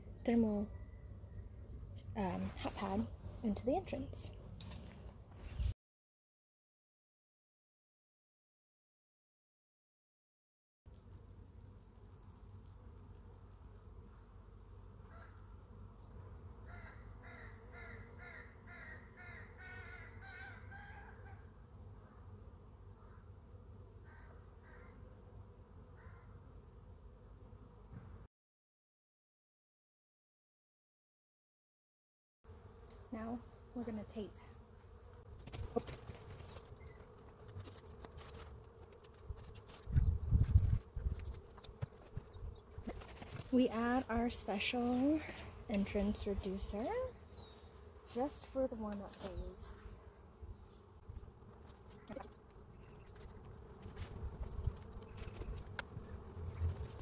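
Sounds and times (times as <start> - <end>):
bees buzzing: 32.5 - 57.0.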